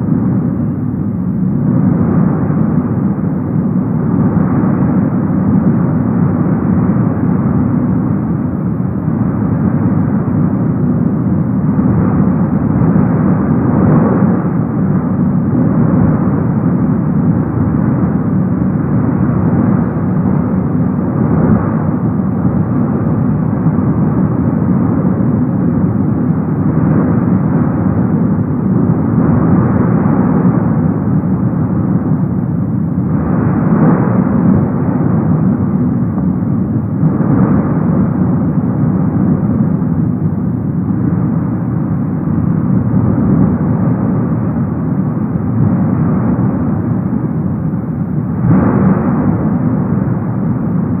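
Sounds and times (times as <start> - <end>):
volcano deep rumble: 0.0 - 51.0.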